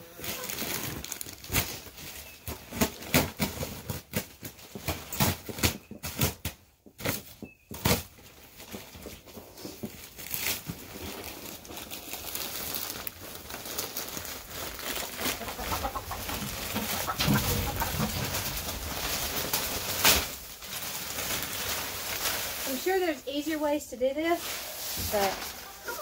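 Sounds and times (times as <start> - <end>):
plastic bag crinkling: 0.1 - 6.1, 8.0 - 26.0
wood shavings pouring: 10.2 - 23.5, 24.3 - 26.0
hens clucking: 14.9 - 19.9, 25.2 - 26.0.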